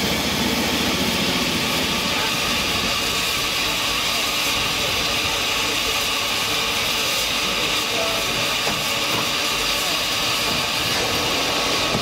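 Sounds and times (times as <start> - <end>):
steam locomotive hissing steam: 0.0 - 12.0.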